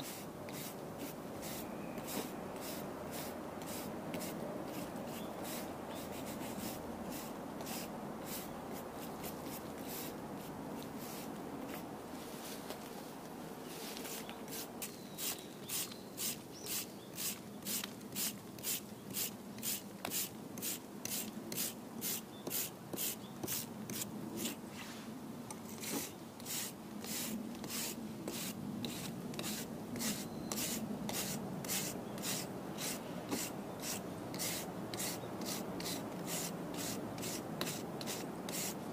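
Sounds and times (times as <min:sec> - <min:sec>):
wire brush scrubbing concrete: 0:25.8 - 0:38.8.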